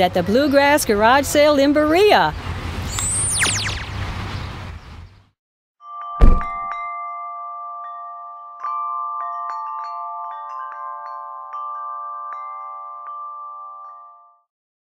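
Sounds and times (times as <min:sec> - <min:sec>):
tinkling bell-like chime notes: 0:05.8 - 0:14.5.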